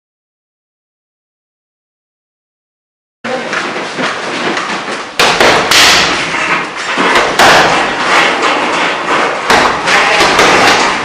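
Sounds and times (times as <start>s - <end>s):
loud noisy background: 3.3s - 11.0s
martial arts impact thuds: 5.1s - 8.3s, 9.2s - 11.0s.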